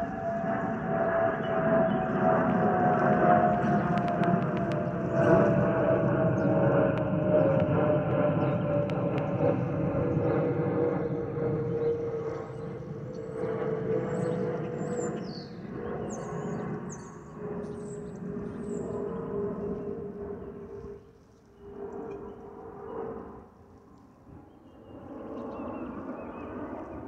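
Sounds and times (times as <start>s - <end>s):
jet engine rumble: 0.0s - 27.0s
birds chirping: 0.6s - 9.4s, 11.3s - 20.6s.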